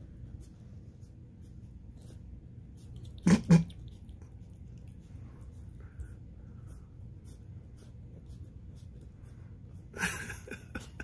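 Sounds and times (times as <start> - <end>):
animal nibbling wet clicks: 2.7 - 5.8.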